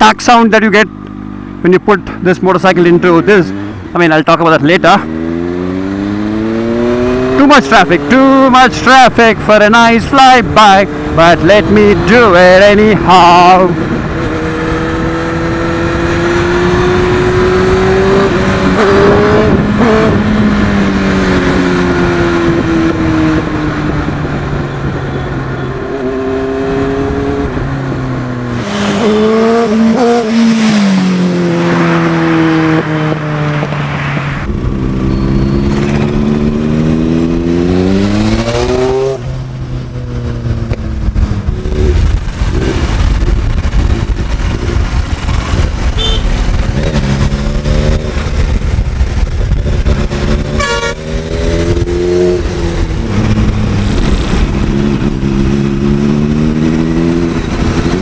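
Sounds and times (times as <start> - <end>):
motorcycle engine revving: 0.8 - 58.0.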